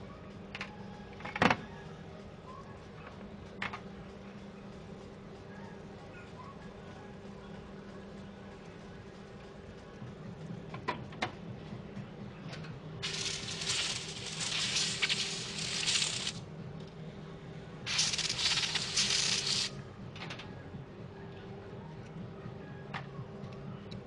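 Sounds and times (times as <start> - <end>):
spray gun hissing air: 13.0 - 16.4, 17.9 - 19.7.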